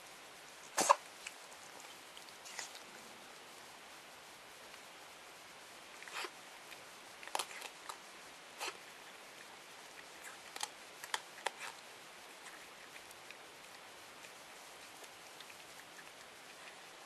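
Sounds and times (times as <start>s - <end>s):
animal crunching dry kibble: 6.0s - 17.0s.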